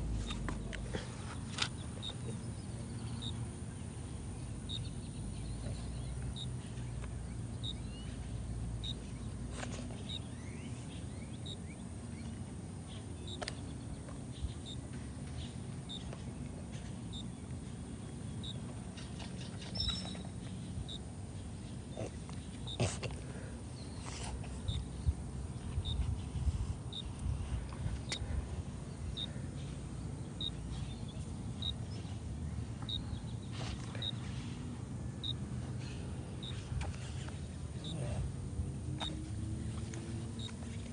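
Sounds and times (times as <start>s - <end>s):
bird chirping: 0.2s - 22.9s, 28.0s - 34.3s
steady low rumble: 20.4s - 40.9s.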